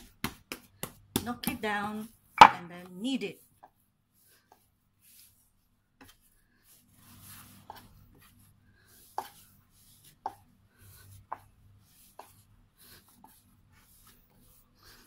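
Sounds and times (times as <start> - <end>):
dough being kneaded by hand: 0.0 - 15.0
sharp wooden knocks: 2.4 - 2.7.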